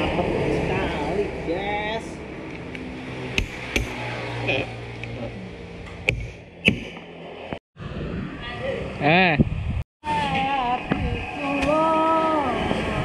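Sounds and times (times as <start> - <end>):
sharp knocks: 3.3 - 4.0, 5.9 - 7.1.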